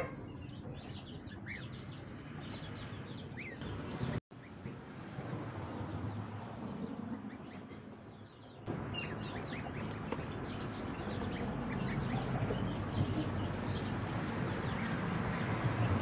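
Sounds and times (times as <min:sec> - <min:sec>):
chicks peeping: 0:00.0 - 0:04.2, 0:08.3 - 0:15.7.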